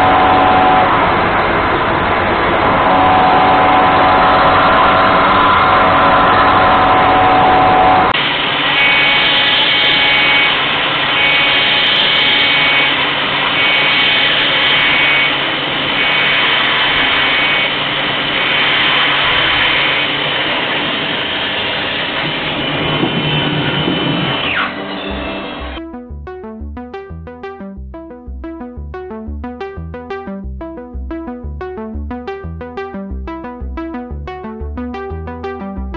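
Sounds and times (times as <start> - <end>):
falling whine: 0.0 - 11.0
pulsing high whine: 0.0 - 20.4.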